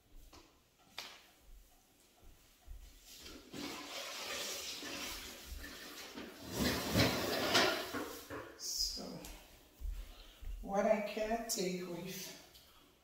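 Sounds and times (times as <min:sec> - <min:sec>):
toilet flushing: 0:03.2 - 0:08.1.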